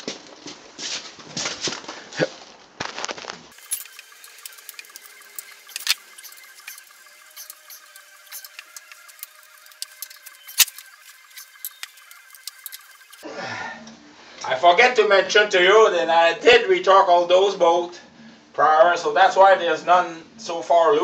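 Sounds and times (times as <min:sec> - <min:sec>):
torque wrench ratcheting clicks: 0:03.6 - 0:13.2.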